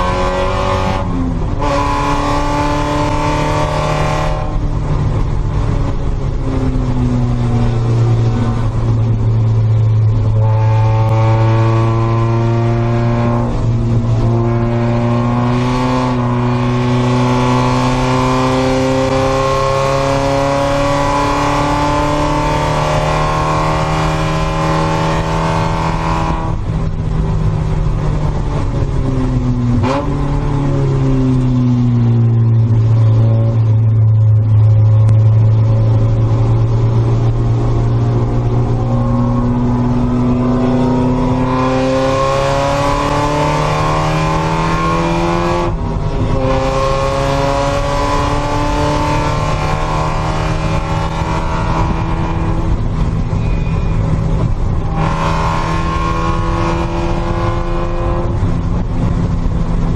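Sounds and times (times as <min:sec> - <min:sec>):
racing car engine: 0:00.0 - 0:59.9.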